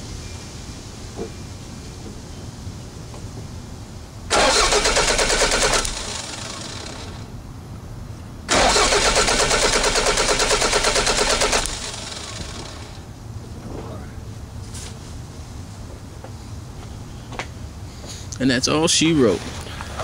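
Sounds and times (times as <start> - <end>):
engine cranking on starter motor: 4.3 - 7.3, 8.5 - 13.0.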